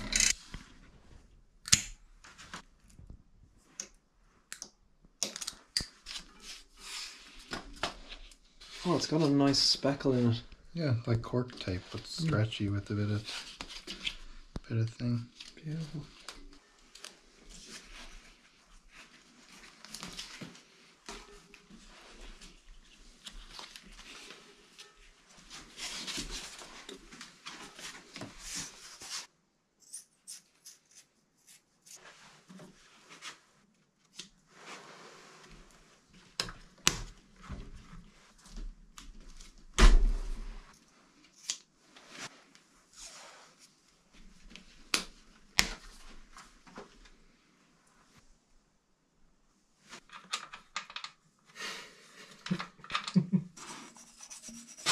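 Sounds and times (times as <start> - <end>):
small clicks and knocks: 50.0 - 51.2.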